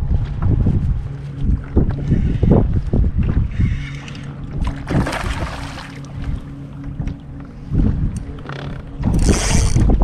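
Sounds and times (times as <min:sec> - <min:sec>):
steady low hum: 0:00.0 - 0:10.0
wind buffeting microphone: 0:00.0 - 0:10.0
waves splashing against hull: 0:03.2 - 0:10.0.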